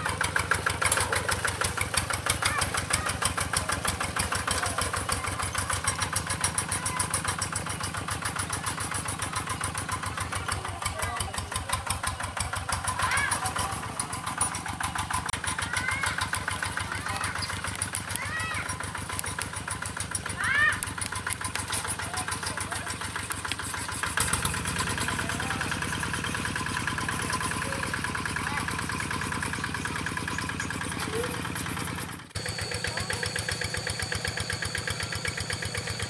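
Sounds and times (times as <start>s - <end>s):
diesel engine chugging: 0.0s - 36.0s.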